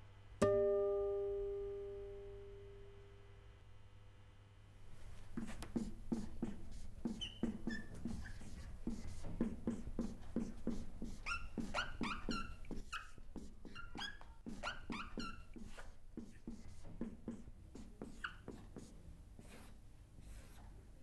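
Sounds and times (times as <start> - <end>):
marker writing on whiteboard: 5.3 - 20.8
marker squeaks: 5.4 - 19.7.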